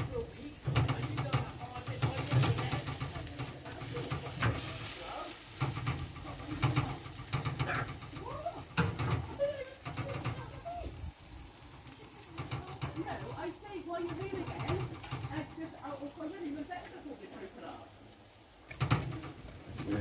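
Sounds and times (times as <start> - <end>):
tongs clicking on grill grate: 0.0 - 17.0, 18.6 - 19.9.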